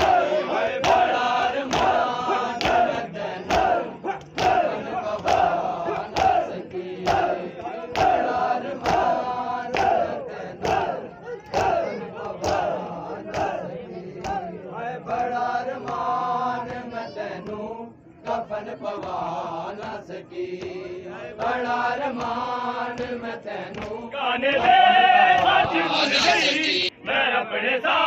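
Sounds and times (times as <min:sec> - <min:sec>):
men chanting in unison: 0:00.0 - 0:28.0
hands slapping on chests: 0:00.8 - 0:13.6, 0:14.2 - 0:14.5, 0:21.4 - 0:24.0.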